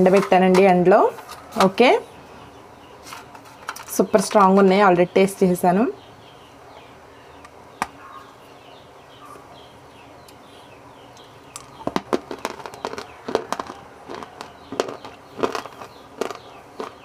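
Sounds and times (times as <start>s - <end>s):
crunching hard food: 11.2s - 17.0s
loud sharp cracks of biting: 11.6s - 17.0s.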